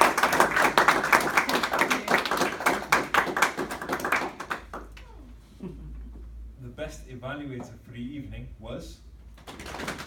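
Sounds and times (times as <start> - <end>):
small audience clapping: 0.0 - 5.2, 9.4 - 10.0.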